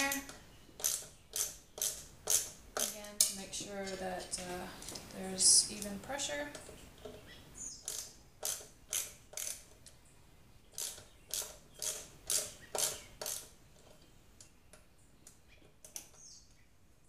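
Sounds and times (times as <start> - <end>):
hand ratchet clicking: 0.0 - 3.4, 7.8 - 9.9, 10.8 - 13.6.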